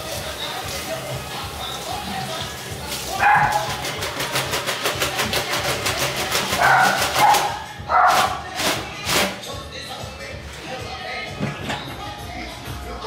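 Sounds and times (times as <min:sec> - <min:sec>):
leaves swished under running water: 0:00.0 - 0:04.8.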